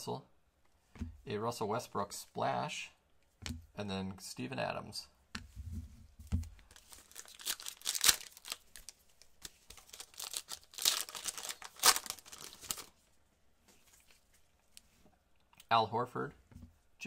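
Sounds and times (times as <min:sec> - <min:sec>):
foil wrapper crinkling and tearing: 0:06.7 - 0:12.9.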